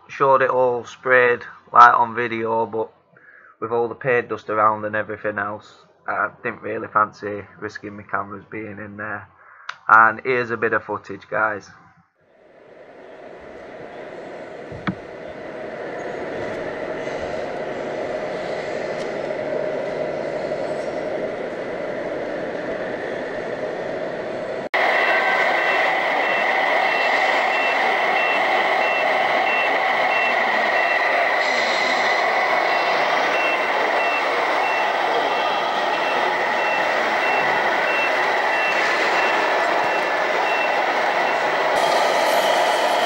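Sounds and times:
mechanical hum: 12.3s - 43.0s
truck reversing beeper: 24.7s - 43.0s.

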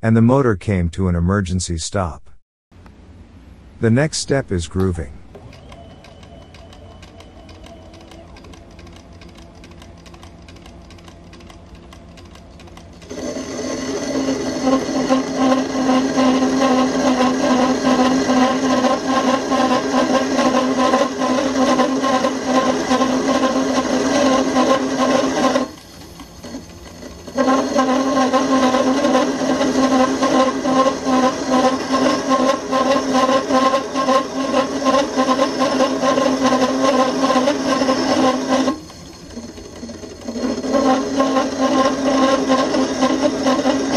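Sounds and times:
lathe running: 5.3s - 43.9s
cutting tool buzzing on steel: 12.7s - 43.9s.

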